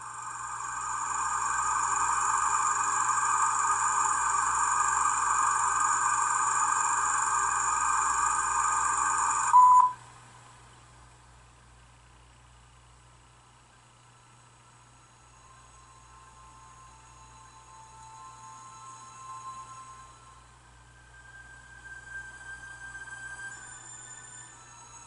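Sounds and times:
steady whirring: 0:00.0 - 0:09.6
short loud beep: 0:09.5 - 0:10.0.

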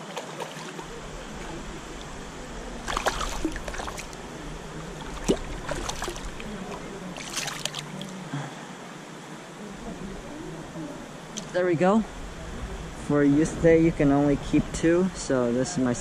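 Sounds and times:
water splashing in creek: 0:00.0 - 0:08.3.

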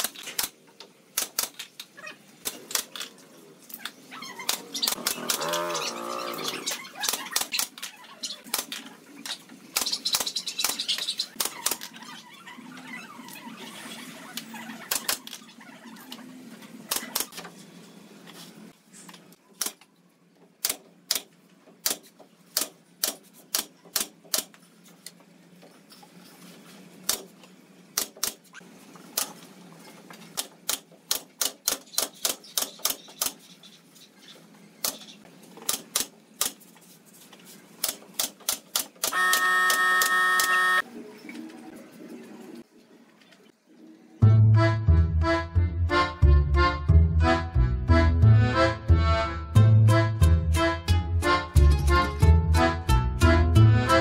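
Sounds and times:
nail gun firing: 0:20.6 - 0:24.6, 0:28.0 - 0:28.5, 0:30.4 - 0:33.4, 0:37.8 - 0:40.2
loud held buzzing tone: 0:39.1 - 0:40.8.

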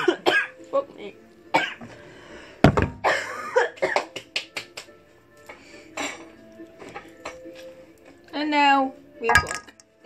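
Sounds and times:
cough-like noises: 0:00.0 - 0:00.6, 0:01.5 - 0:02.0, 0:03.0 - 0:04.2, 0:05.9 - 0:06.3
faint background music: 0:00.0 - 0:10.0
steel bowl thud: 0:09.2 - 0:09.9.

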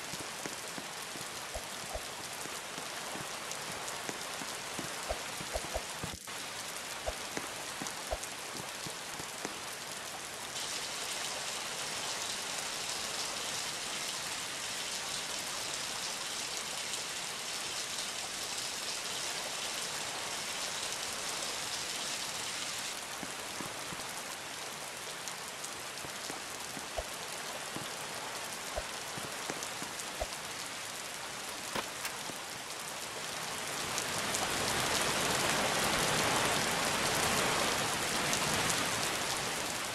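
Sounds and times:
raindrop ticks: 0:00.0 - 0:10.6, 0:22.9 - 0:35.6
rain falling: 0:00.0 - 0:39.9.

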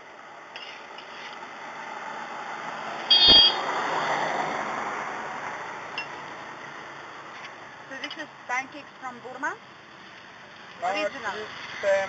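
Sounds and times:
vehicle passing by: 0:01.1 - 0:07.3
thump: 0:03.2 - 0:03.5.

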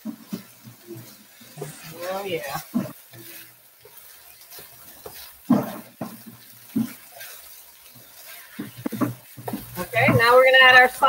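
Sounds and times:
faint sizzle: 0:00.0 - 0:11.0
wooden spoon stirring food: 0:00.0 - 0:11.0
spoon knocking on pan: 0:02.6 - 0:07.4.

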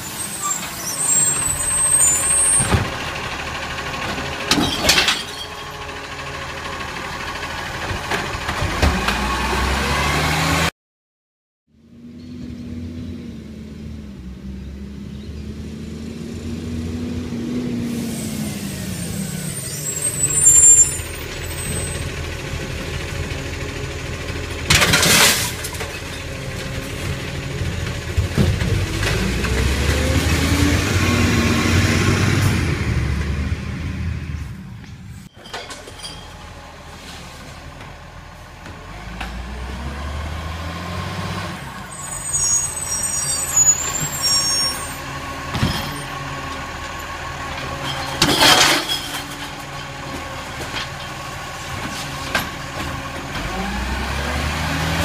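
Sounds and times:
truck engine running: 0:00.0 - 0:09.9, 0:13.4 - 0:43.2, 0:43.8 - 0:55.0.

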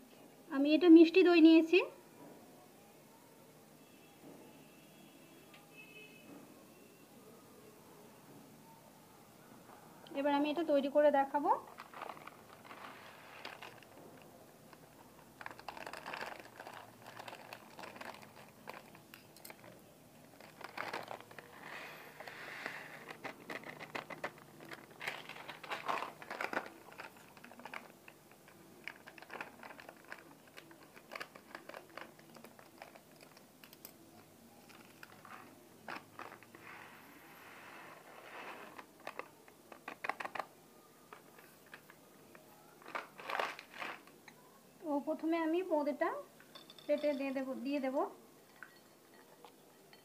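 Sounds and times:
plastic packets crinkling: 0:11.6 - 0:36.7, 0:38.2 - 0:44.2
snacks pattering into glass bowls: 0:11.7 - 0:22.3, 0:23.0 - 0:36.5.

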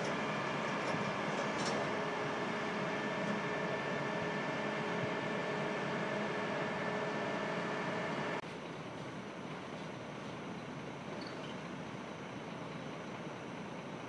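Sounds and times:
heavy machinery droning: 0:00.0 - 0:09.5.

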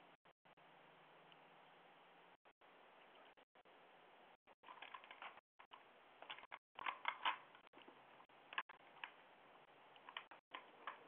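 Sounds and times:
faint microphone hiss: 0:00.0 - 0:04.8.

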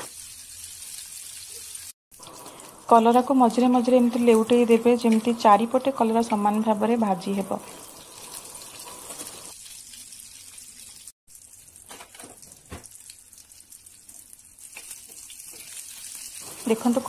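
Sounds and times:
oil sizzling in a pan: 0:00.0 - 0:17.0.

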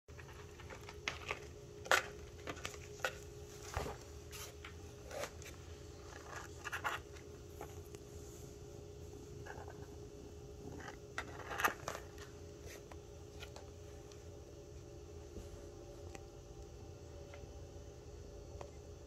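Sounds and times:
faint steady hum: 0:00.1 - 0:19.0.

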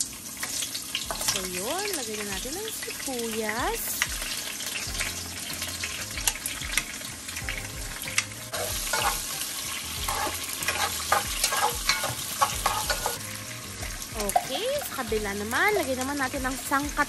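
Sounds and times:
onions sizzling in oil: 0:00.0 - 0:17.0
utensil stirring clicks and scrapes: 0:10.0 - 0:13.2.

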